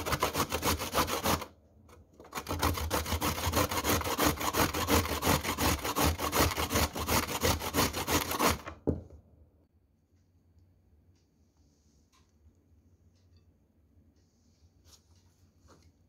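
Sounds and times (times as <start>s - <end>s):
carrot grating on metal grater: 0.0s - 1.5s, 2.3s - 8.7s.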